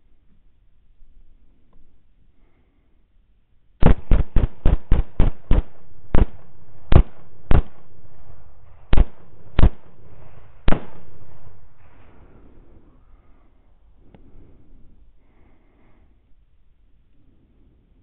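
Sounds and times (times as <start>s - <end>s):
rifle shots with echo: 3.8s - 12.6s.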